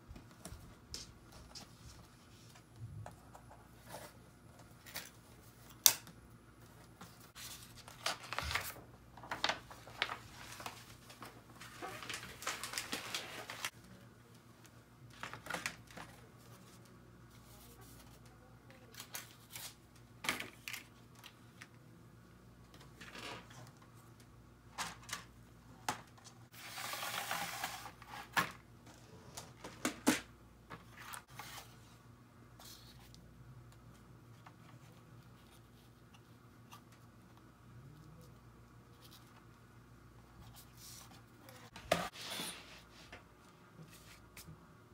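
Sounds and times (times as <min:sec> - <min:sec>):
board and paper sliding and rustling: 0:26.5 - 0:28.5, 0:40.8 - 0:43.2.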